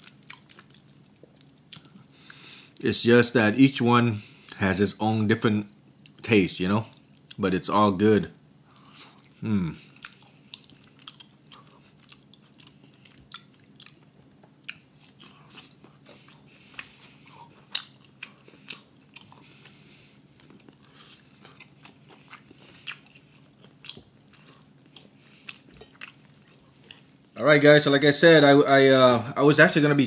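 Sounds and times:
person chewing: 0.0 - 2.8, 4.3 - 4.6, 6.8 - 7.4, 8.6 - 27.4.

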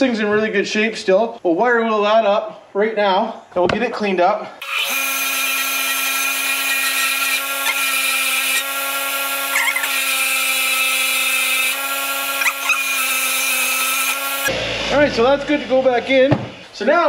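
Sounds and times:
wire wheel grinder running: 4.6 - 16.7.

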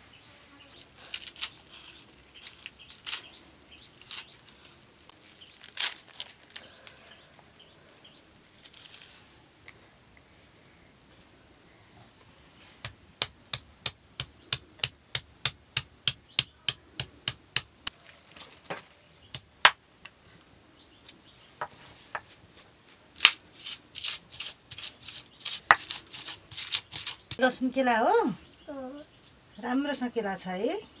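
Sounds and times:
pestle grinding: 23.6 - 27.4.

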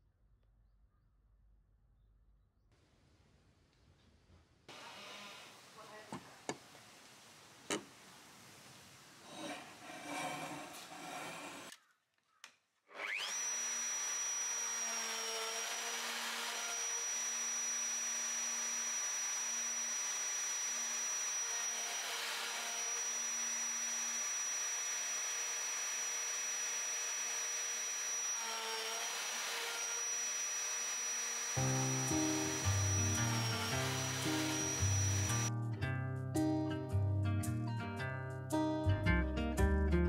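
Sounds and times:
router whining: 4.7 - 5.5, 9.3 - 11.8, 12.9 - 35.5.

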